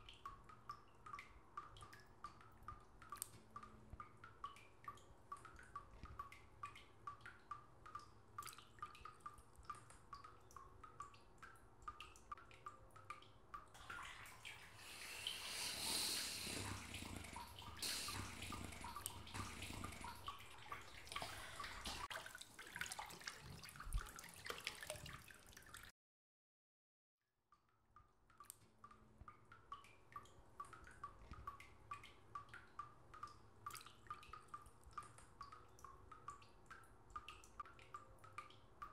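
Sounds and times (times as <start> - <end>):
water dripping into water: 0.0 - 25.9, 27.5 - 38.9
running splashing water: 13.8 - 25.9.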